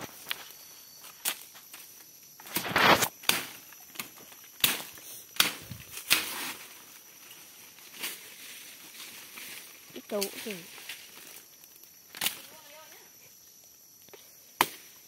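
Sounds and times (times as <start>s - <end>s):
rustling leaves: 0.0s - 15.0s
machete chopping undergrowth: 2.4s - 6.6s, 12.1s - 12.5s, 14.6s - 15.0s.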